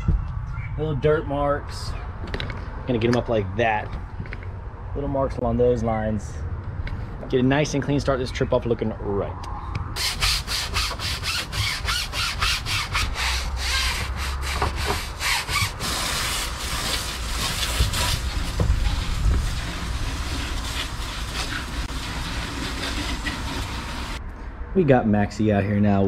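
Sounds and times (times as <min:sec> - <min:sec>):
deck brush scrubbing: 0:10.0 - 0:24.2
garden hose spraying water: 0:15.7 - 0:24.2.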